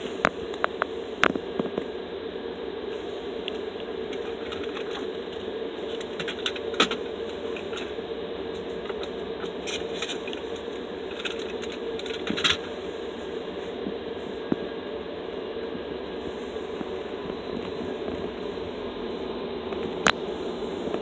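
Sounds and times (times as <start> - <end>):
car cabin hum: 0.0 - 21.0
small clicks and crackles: 3.4 - 12.8.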